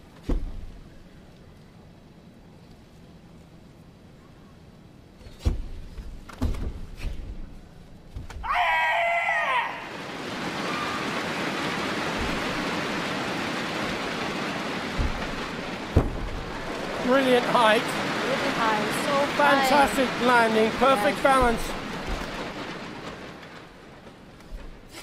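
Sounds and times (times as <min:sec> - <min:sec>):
loud drawn-out shout: 0:08.4 - 0:10.0, 0:17.0 - 0:21.7
bare feet stamping on mat: 0:14.9 - 0:16.6
crowd noise: 0:15.6 - 0:23.4.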